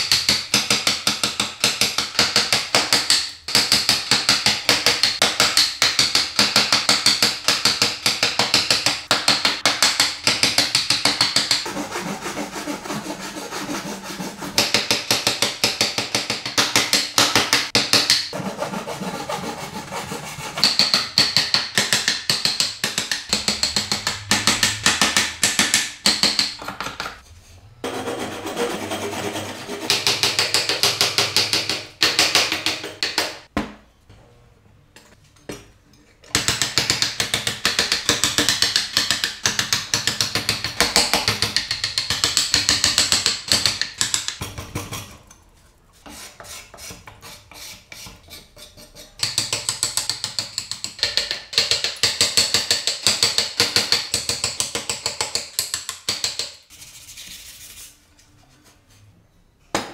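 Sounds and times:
hand saw cutting wood: 0:11.6 - 0:14.9, 0:18.3 - 0:20.8, 0:27.8 - 0:30.1.

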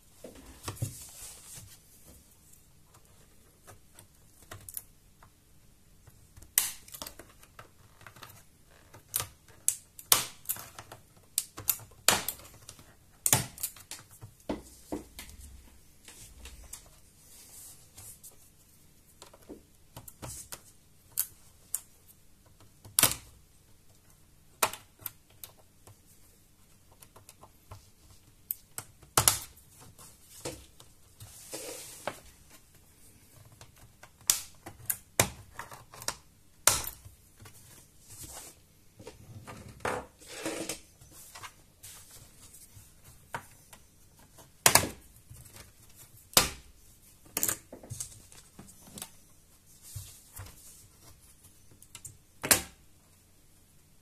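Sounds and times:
light scraping and handling: 0:30.0 - 0:32.7.

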